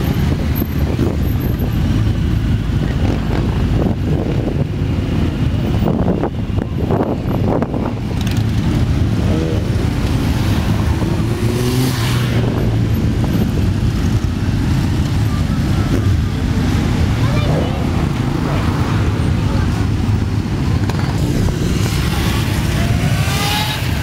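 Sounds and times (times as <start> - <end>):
group of motorcycles rumbling: 0.0 - 24.0
motorcycle engine revving: 7.8 - 24.0.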